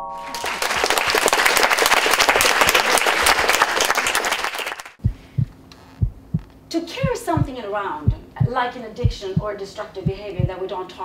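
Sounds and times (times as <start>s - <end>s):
audience applause: 0.2s - 5.0s
soft low thumps: 5.0s - 10.7s.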